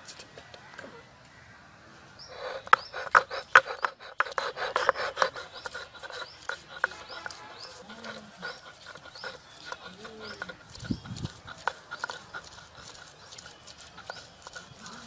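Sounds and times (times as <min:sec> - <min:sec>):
stone rasping on stone: 0:02.3 - 0:15.0.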